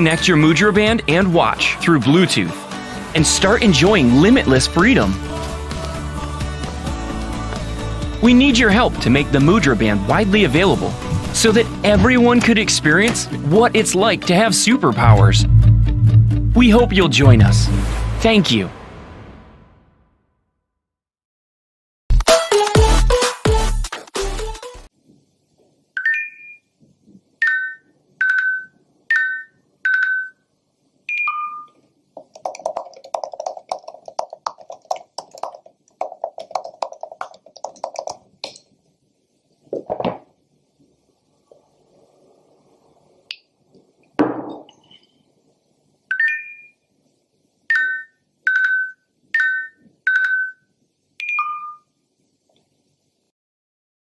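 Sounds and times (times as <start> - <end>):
electronic ringtone tune: 26.0 - 26.6, 27.4 - 30.4, 31.1 - 31.7, 47.7 - 50.6, 51.2 - 51.8
short electronic beeps: 31.1 - 31.8, 51.2 - 51.9.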